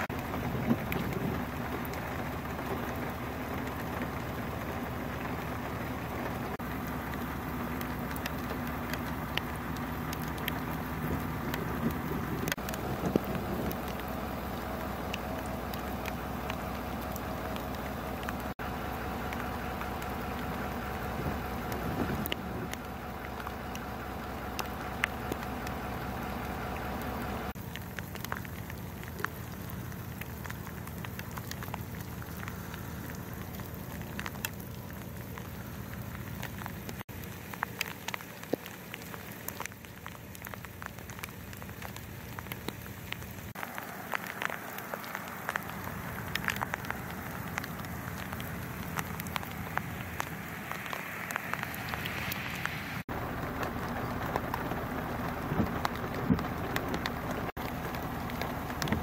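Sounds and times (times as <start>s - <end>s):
drops ticking on iced twigs: 0.0s - 59.0s
freezing rain pattering: 0.0s - 59.0s.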